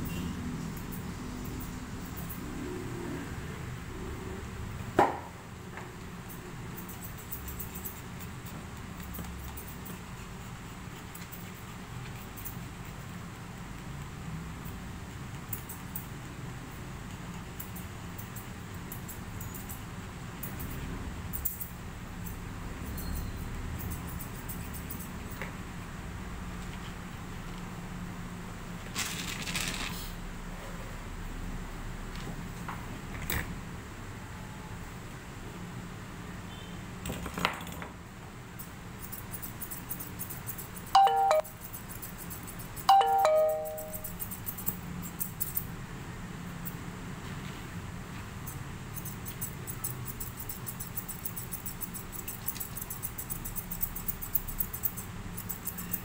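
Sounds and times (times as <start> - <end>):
scissors snipping fur: 6.2 - 25.5, 39.0 - 45.7, 48.4 - 56.0
electronic ding-dong chime: 41.0 - 41.7, 42.9 - 44.2.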